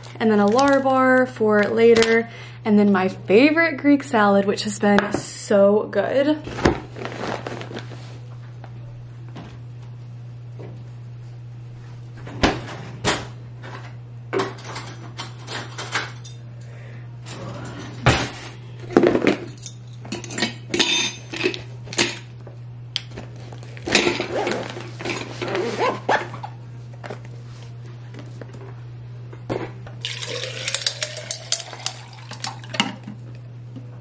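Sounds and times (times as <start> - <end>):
steady low hum: 0.0 - 34.0
zipper being pulled: 24.2 - 26.4.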